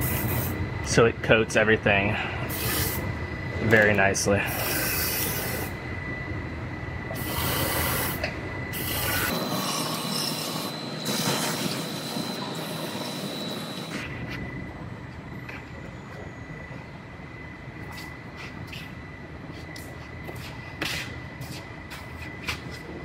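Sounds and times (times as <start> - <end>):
aerosol can hissing: 2.5 - 3.0.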